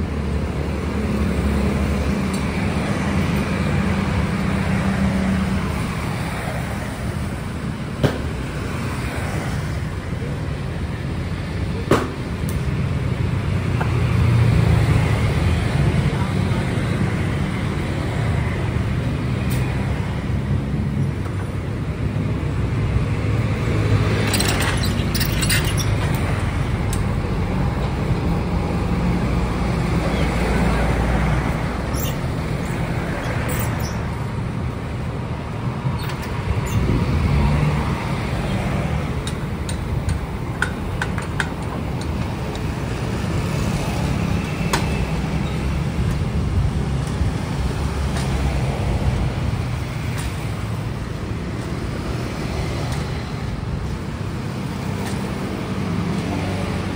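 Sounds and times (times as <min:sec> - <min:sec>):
low rumble of traffic: 0:00.0 - 0:56.9
sharp clicks and knocks: 0:39.2 - 0:42.8.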